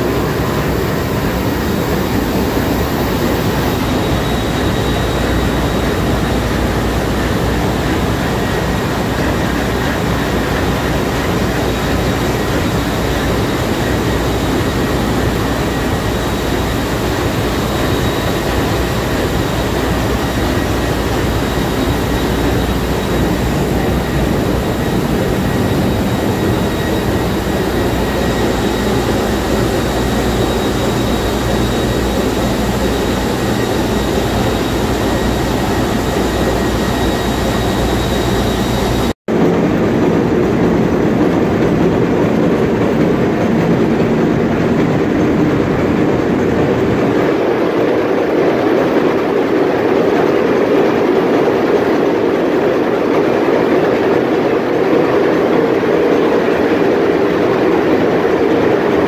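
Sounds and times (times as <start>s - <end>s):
faint high whine: 0.0s - 39.2s
loud marine diesel engine din: 0.0s - 39.2s.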